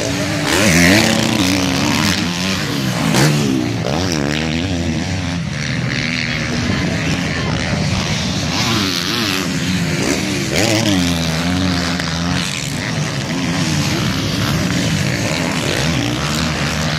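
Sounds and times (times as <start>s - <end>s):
motocross engines revving: 0.0s - 16.9s.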